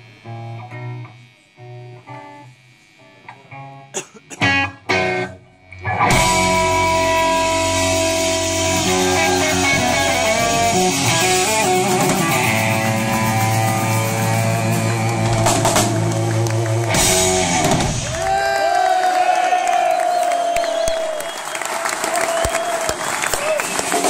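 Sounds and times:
electric guitar ringing notes: 0.0 - 18.3
drums: 0.0 - 24.0
bass: 4.4 - 18.5.

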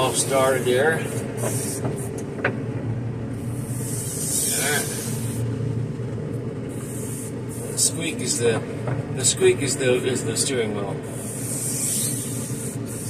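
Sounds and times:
diesel engine running: 0.0 - 13.0
hiss: 0.2 - 2.1, 3.4 - 5.5, 6.7 - 8.0, 11.1 - 13.0.

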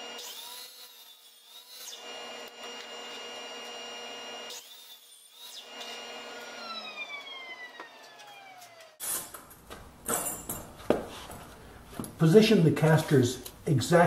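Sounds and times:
miter saw cutting wood: 0.0 - 9.3
saw motor spinning down: 1.6 - 9.0.

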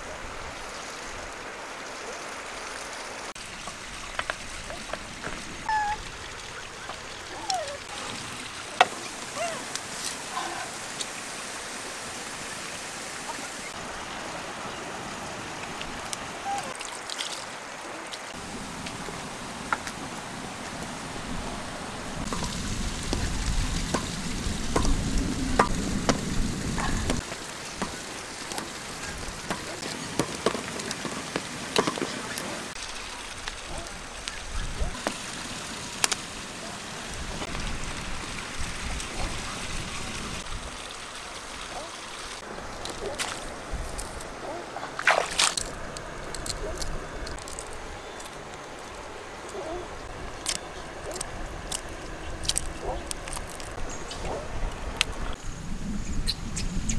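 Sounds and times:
steady hiss: 17.4 - 44.4
wood fire crackling: 18.3 - 38.8, 45.4 - 55.3.

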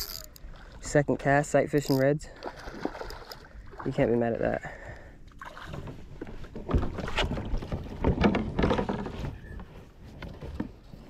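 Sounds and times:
water sloshing against kayak hull: 0.1 - 11.0.

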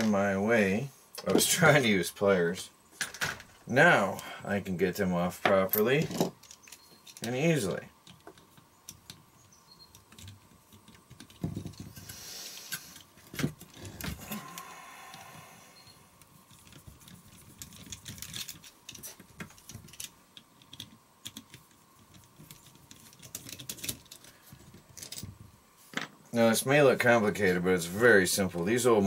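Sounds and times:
handling rattles: 5.4 - 14.6, 16.3 - 26.2.

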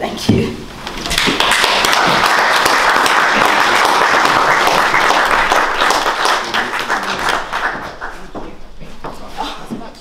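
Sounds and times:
audience applauding: 1.0 - 8.4.

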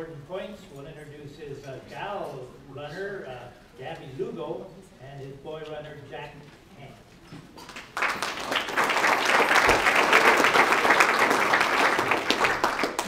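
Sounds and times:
people applauding: 7.6 - 13.0.

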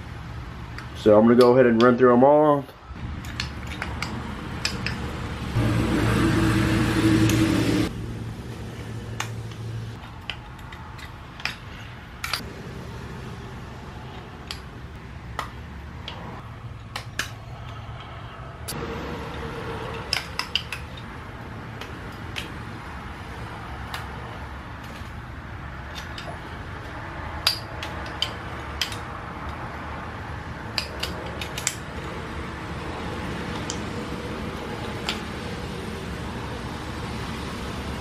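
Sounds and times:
steady hum: 2.8 - 38.0
metal parts clinking: 3.2 - 5.0, 25.8 - 26.5.

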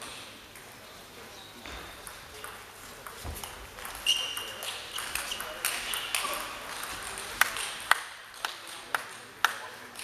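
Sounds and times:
shoes squeaking on floor: 3.2 - 6.4.

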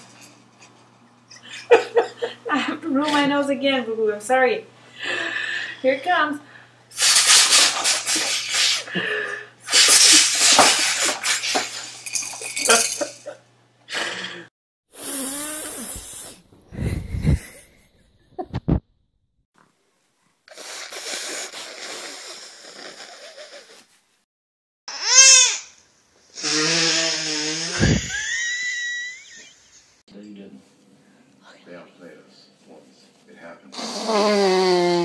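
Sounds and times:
people blowing noses: 7.0 - 12.8, 13.9 - 17.6, 20.5 - 23.9, 24.9 - 25.7, 26.4 - 29.4, 33.7 - 35.0.

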